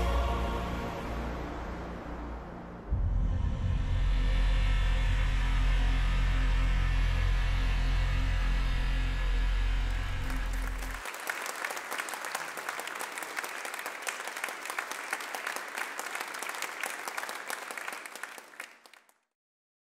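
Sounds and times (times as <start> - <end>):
film music: 0.0 - 11.1
audience applauding: 9.9 - 19.2.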